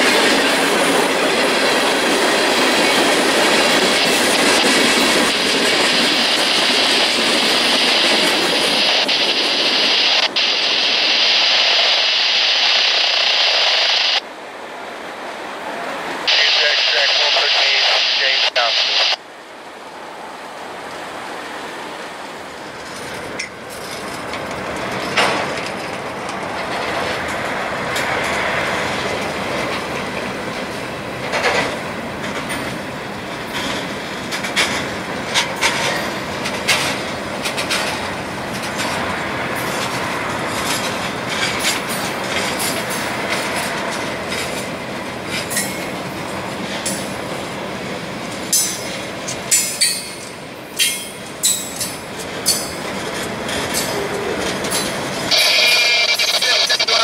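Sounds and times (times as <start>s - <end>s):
freight train rolling past: 0.0s - 16.9s, 19.2s - 56.0s
train wheels clicking and clanking: 22.8s - 47.4s, 48.2s - 55.4s.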